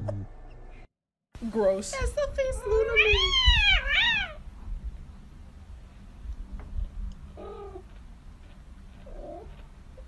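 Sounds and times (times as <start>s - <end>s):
cat meowing: 2.6s - 4.4s.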